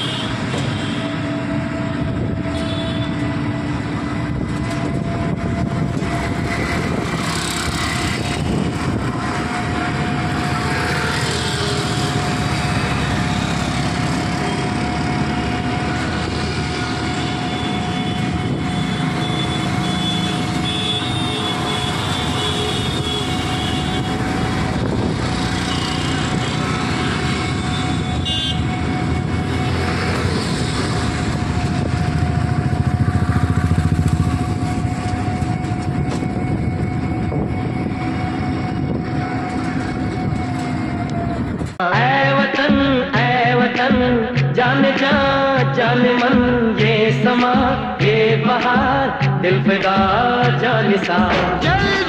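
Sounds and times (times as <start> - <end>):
road and engine noise: 0.0 - 52.0
car horn toots: 17.4 - 24.2, 27.6 - 28.8.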